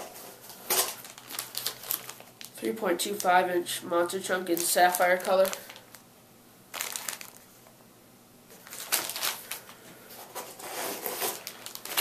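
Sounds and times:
plastic bags crinkling: 0.1 - 3.5, 4.2 - 6.1, 6.7 - 7.5, 8.5 - 12.0.

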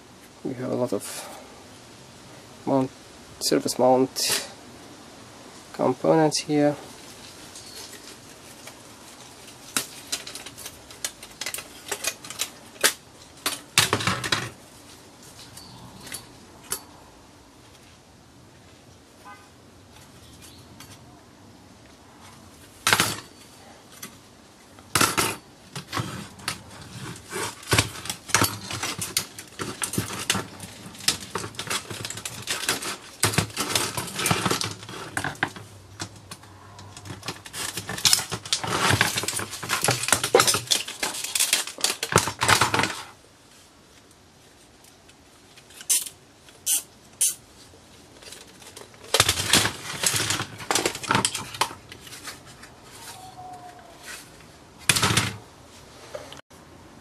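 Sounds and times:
plastic parts clattering: 7.6 - 14.6, 22.8 - 23.4, 24.8 - 43.2, 48.1 - 53.2, 54.0 - 55.4.

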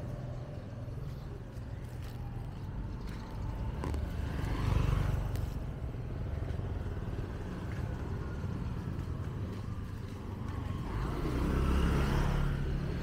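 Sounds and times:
low traffic rumble: 0.0 - 13.0
motorbike engine passing: 3.6 - 13.0.

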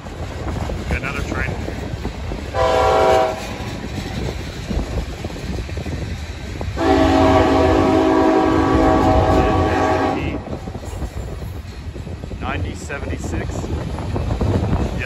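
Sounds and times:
freight cars rumbling on rails: 0.0 - 15.0
locomotive horn blasts: 2.6 - 3.6, 6.8 - 10.5.

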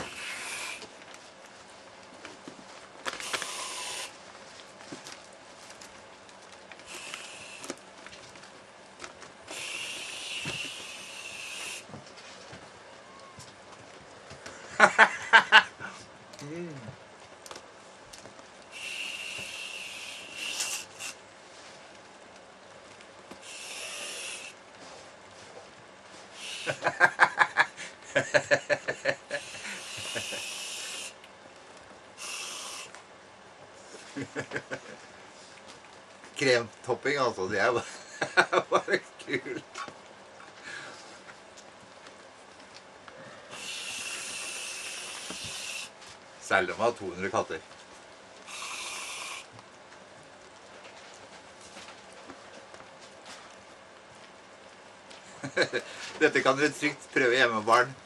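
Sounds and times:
aerosol can hissing: 0.0 - 0.8, 3.2 - 4.2, 6.9 - 7.7, 9.5 - 11.9, 18.7 - 21.2, 23.4 - 24.6, 26.4 - 26.9, 29.3 - 31.2, 32.2 - 33.0, 43.5 - 45.9, 48.5 - 49.5.

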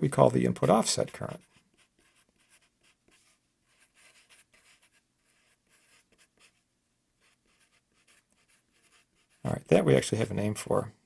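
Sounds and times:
marker writing on paper: 0.6 - 6.6, 7.2 - 9.4.

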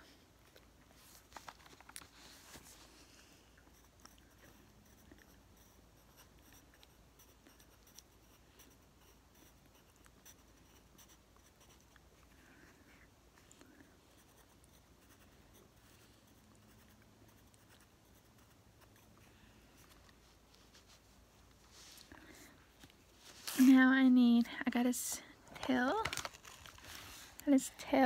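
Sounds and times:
pencil scratching on paper: 3.7 - 11.9, 14.2 - 19.9.

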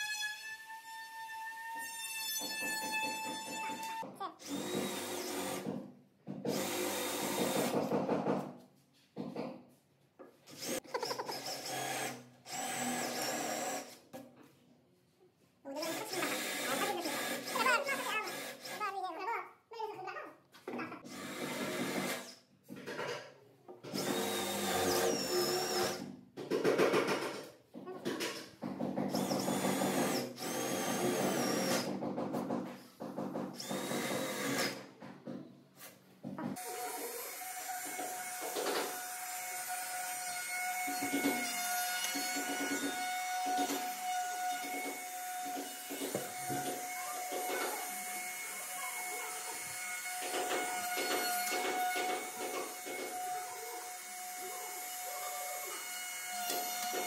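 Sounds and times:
drill boring into wood: 0.0 - 5.7, 6.5 - 7.8, 10.5 - 14.0, 15.8 - 18.9, 21.1 - 22.4, 23.9 - 26.0, 29.1 - 31.9, 33.6 - 34.8, 36.6 - 57.0
router bit cutting wood: 3.7 - 5.7, 15.9 - 18.8, 24.0 - 26.0, 33.6 - 34.8, 36.6 - 57.0
router whining: 3.7 - 5.7, 10.5 - 14.0, 15.8 - 18.8, 23.9 - 26.0, 29.1 - 31.9, 33.6 - 34.8, 36.6 - 57.0.

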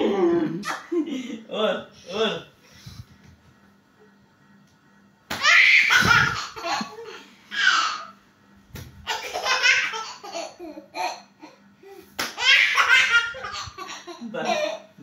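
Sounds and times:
toddler laughing: 5.4 - 8.1, 9.0 - 11.6, 12.4 - 14.9.

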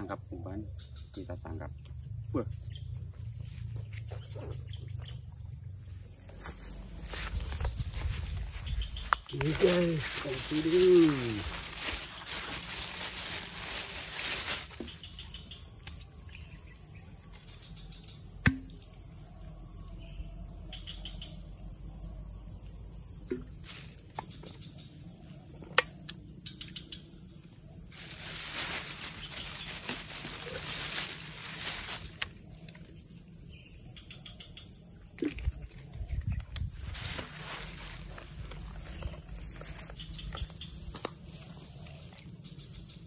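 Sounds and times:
insects chirring: 0.0 - 43.0
plastic bag rustling: 6.4 - 15.2, 27.9 - 32.3, 36.8 - 39.0.

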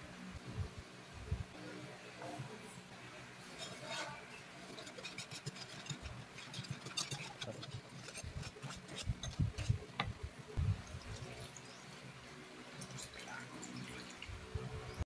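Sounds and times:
wire whisk scraping a pan: 3.4 - 10.1
whisk knocking on pan: 4.8 - 10.2.

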